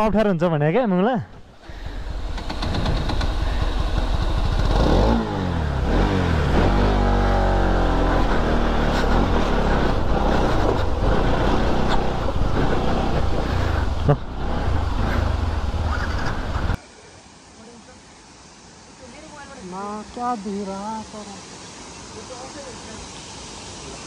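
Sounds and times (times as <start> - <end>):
motorcycle engine revving: 1.7 - 16.8.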